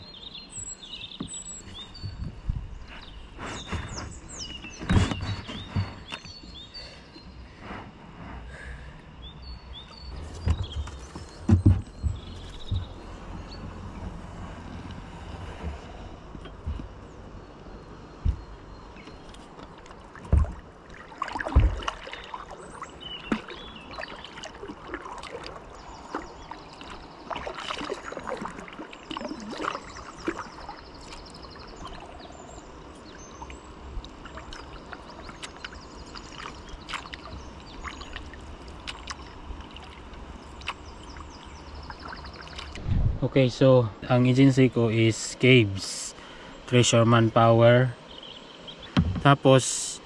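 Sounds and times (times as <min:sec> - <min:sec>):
paddle splashing in water: 0:02.9 - 0:06.4, 0:18.2 - 0:42.9
low knocks: 0:10.2 - 0:13.7, 0:18.2 - 0:18.6, 0:48.9 - 0:49.4.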